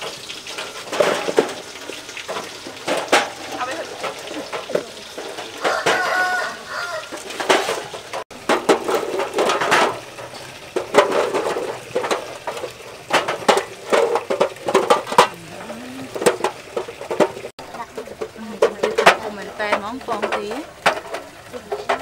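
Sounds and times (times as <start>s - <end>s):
chicken calling: 5.6s - 7.3s.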